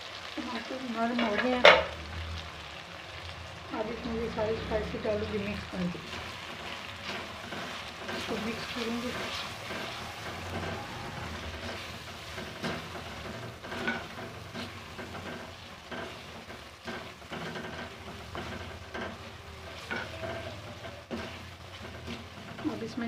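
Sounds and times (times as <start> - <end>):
masala sizzling in oil: 0.0 - 23.0
spatula scraping metal pan: 6.0 - 23.0.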